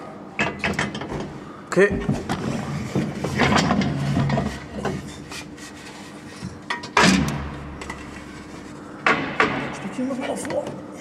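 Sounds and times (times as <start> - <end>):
loud metal knock: 9.0 - 9.9.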